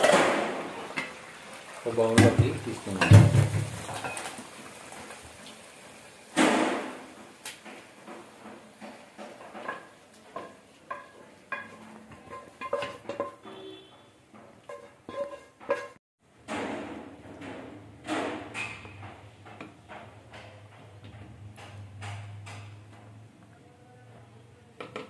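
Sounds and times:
spoon clinking on pan and bowl: 9.6 - 13.8.

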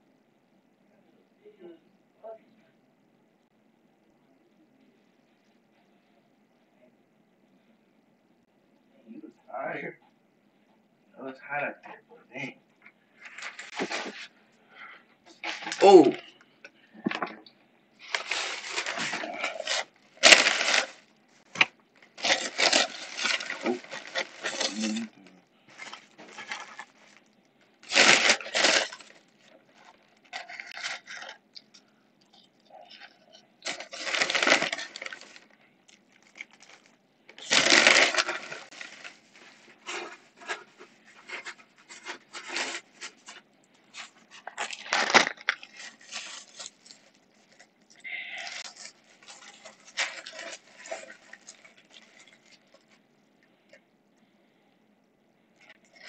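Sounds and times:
rustling and scraping: 13.2 - 14.4, 18.0 - 25.1, 25.7 - 31.4, 36.2 - 47.7, 48.4 - 53.0.

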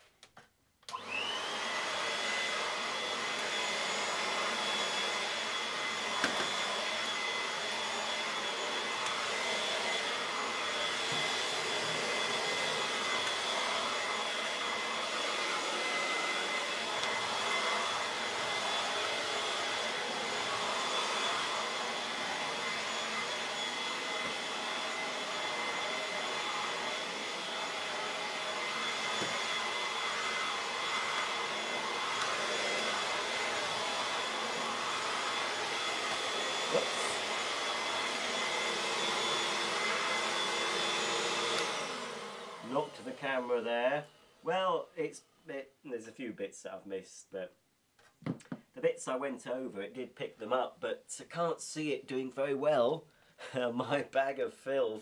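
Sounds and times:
vacuum cleaner motor whine: 0.9 - 43.6.

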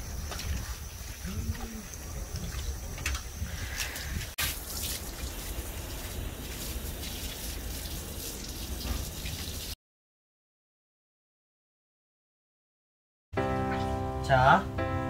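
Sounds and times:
wind rumble on microphone: 0.0 - 4.4
water dripping onto wet concrete: 1.2 - 9.8.

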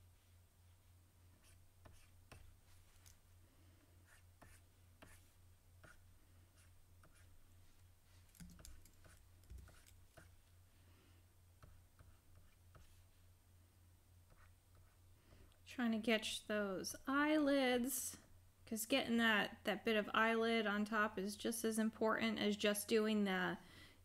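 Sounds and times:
low electrical hum: 0.0 - 24.0
stylus tapping and scratching tablet: 1.3 - 3.2, 4.0 - 10.5, 11.6 - 13.2, 14.2 - 15.0.

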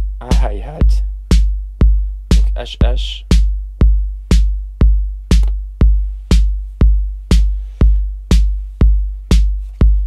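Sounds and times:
kick drum: 0.0 - 10.0
snare drum: 2.3 - 2.6.

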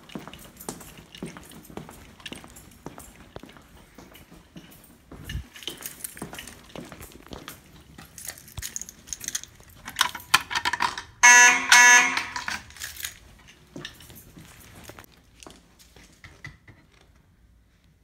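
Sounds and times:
fire alarm horn blasts: 11.2 - 12.7.

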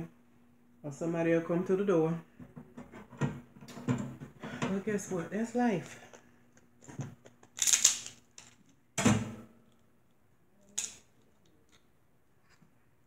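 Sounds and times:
crab shell cracking: 7.2 - 8.2.

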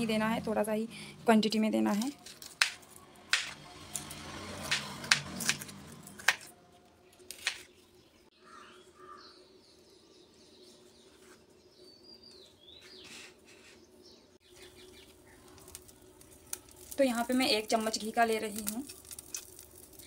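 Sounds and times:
knife chopping on wooden board: 2.5 - 3.6
faint bird chirps: 8.4 - 15.6.

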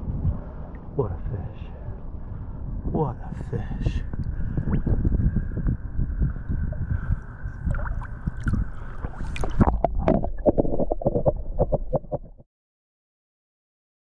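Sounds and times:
low rumble: 0.0 - 12.4
water sloshing and gurgling: 0.0 - 12.4
underwater knocks and bubbling: 4.1 - 12.4.

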